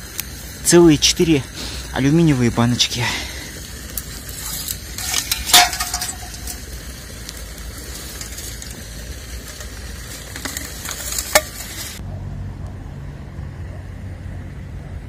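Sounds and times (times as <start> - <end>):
rustling of dry twigs: 0.0 - 12.0
aluminium cans clinking: 4.0 - 6.7, 9.4 - 12.0.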